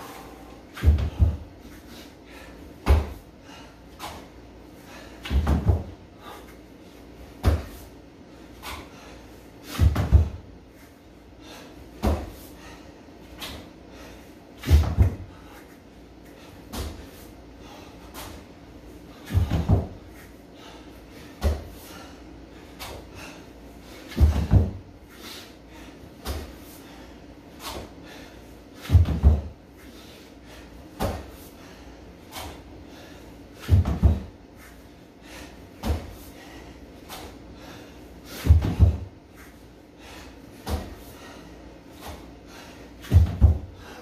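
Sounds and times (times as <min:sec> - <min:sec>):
body thumping on gym floor: 0:09.8 - 0:10.4, 0:14.6 - 0:15.3, 0:19.3 - 0:20.0, 0:28.9 - 0:29.5, 0:33.6 - 0:34.3, 0:38.4 - 0:39.1, 0:43.0 - 0:43.7.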